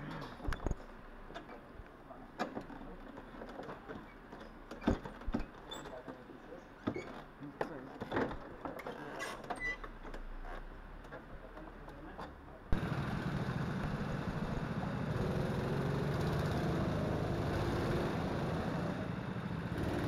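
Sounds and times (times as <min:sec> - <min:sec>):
indoor karting hall noise: 0:12.7 - 0:20.0.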